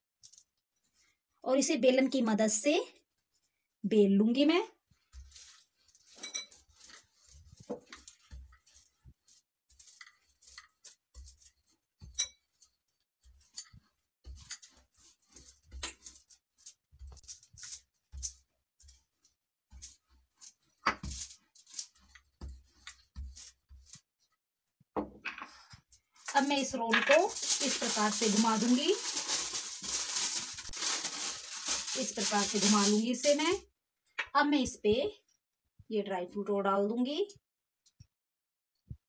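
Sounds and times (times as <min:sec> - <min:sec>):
rolling pin crinkling foil: 0:04.9 - 0:24.0, 0:26.1 - 0:33.6.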